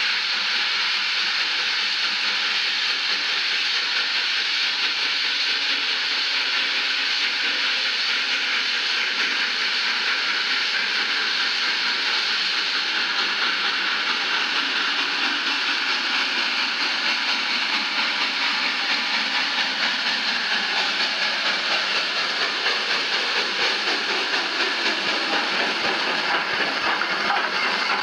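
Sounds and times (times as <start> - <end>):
steam locomotive hissing: 0.0 - 28.0.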